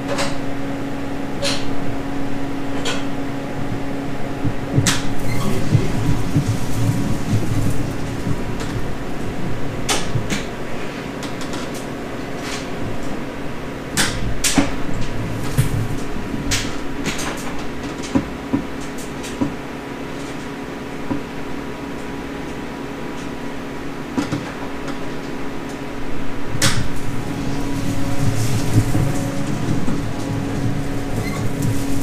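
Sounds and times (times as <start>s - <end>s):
steady hum: 0.0s - 32.0s.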